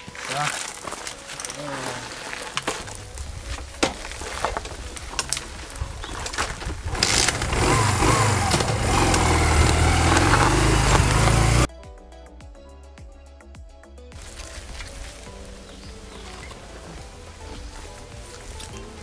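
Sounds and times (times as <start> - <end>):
motorcycle engine revving: 5.5 - 11.7.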